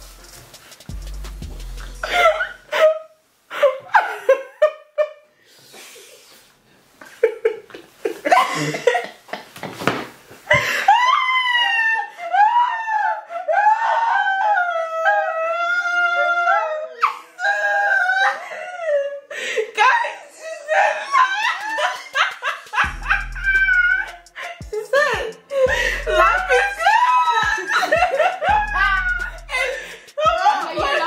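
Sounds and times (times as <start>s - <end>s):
women laughing: 1.9s - 5.3s, 7.1s - 9.6s, 10.5s - 15.5s, 19.8s - 31.0s.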